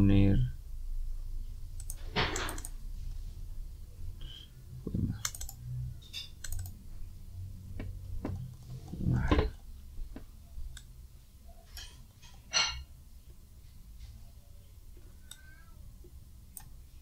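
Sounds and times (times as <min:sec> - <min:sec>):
keyboard and mouse clicks: 0:01.8 - 0:02.8, 0:04.9 - 0:06.8, 0:07.8 - 0:09.7, 0:15.2 - 0:15.5.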